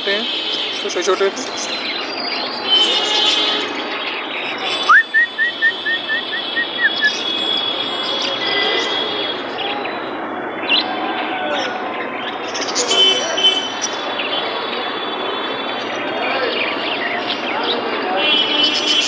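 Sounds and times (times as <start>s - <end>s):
market noise: 0.0s - 19.0s
budgerigars chirping and chattering: 0.8s - 9.2s, 12.2s - 14.5s.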